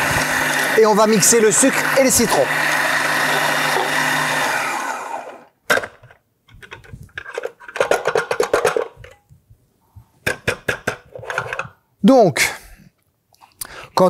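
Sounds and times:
food processor running: 0.0 - 5.5
plastic clicks and knocks: 10.2 - 11.8.

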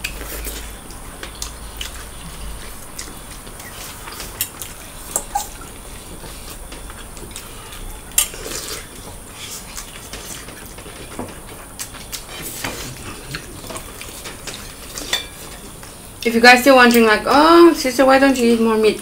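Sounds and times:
mouth sounds of eating: 11.7 - 16.3
metal spoon clinking on plates: 15.0 - 15.6.

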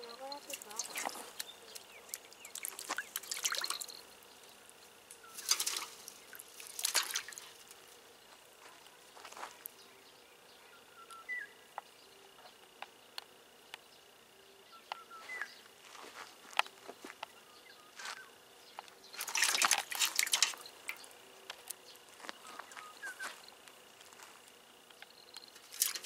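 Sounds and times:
fish splashing in metal bucket: 0.1 - 4.0, 5.2 - 7.8, 19.1 - 21.1, 25.5 - 26.0.

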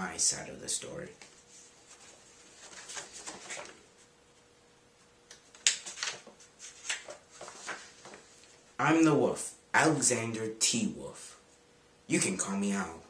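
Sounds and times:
book pages rustling: 1.2 - 4.1, 5.3 - 8.6.

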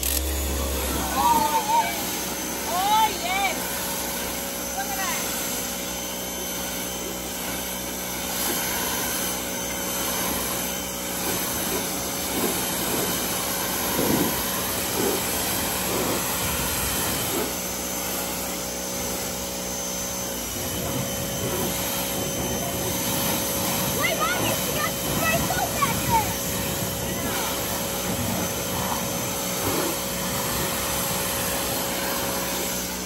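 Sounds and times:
pressure washer motor hum: 0.0 - 33.0
water spray hissing: 6.6 - 19.4, 20.3 - 33.0.

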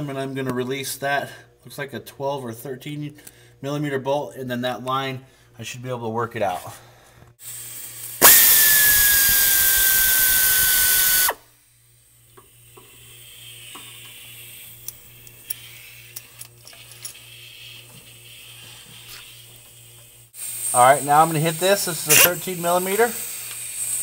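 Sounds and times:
hiss: 7.4 - 11.4, 12.8 - 14.8, 17.1 - 24.0
power ratchet whining: 8.2 - 11.4, 22.0 - 23.1.

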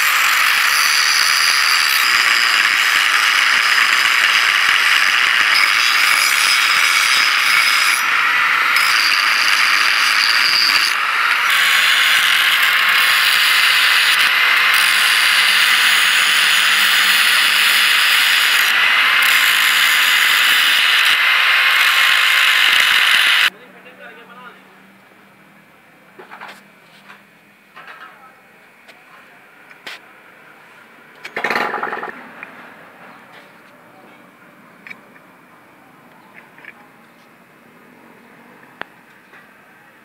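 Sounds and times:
angle grinder grinding steel: 0.0 - 23.5.

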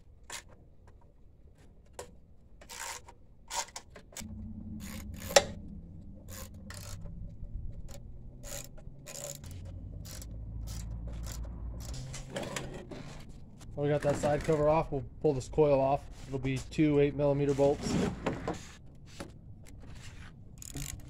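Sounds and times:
hand ratchet clicking: 2.6 - 3.9, 7.8 - 12.2, 20.6 - 21.0
low steady rumble: 4.2 - 16.2.

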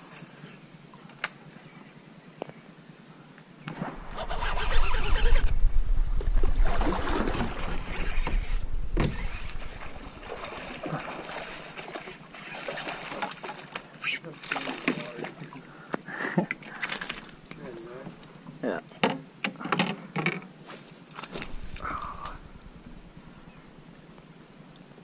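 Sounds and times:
low rumble: 5.0 - 10.5, 21.4 - 24.0
paddle strokes splashing water: 6.3 - 15.7.

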